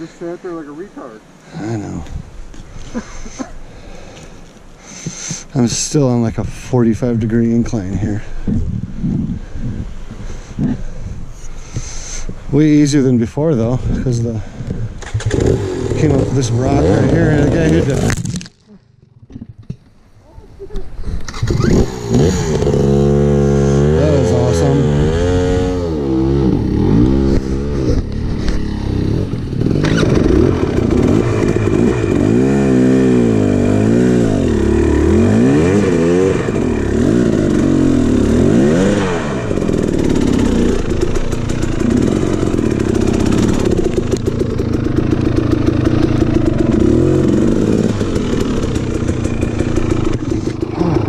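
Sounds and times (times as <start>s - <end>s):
dirt bike engine revving: 15.0s - 18.2s, 21.3s - 51.0s.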